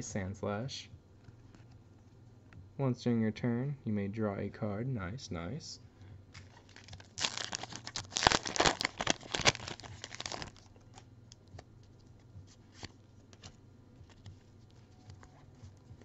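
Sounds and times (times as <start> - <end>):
trading cards being handled: 6.3 - 16.0
foil wrapper crinkling and tearing: 6.4 - 10.7.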